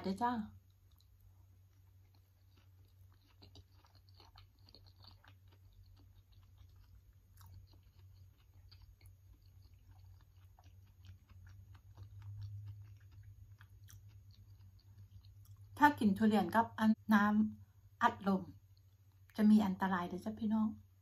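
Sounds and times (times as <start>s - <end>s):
steady low hum: 0.0s - 21.0s
close-up wet chewing: 0.6s - 15.8s.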